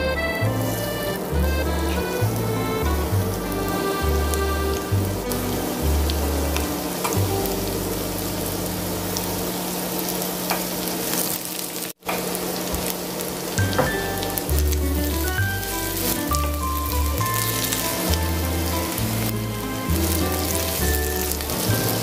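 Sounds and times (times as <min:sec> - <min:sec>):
background music: 0:00.0 - 0:09.3, 0:13.6 - 0:22.0
oil sizzling in frying pan: 0:08.9 - 0:19.3, 0:19.9 - 0:22.0.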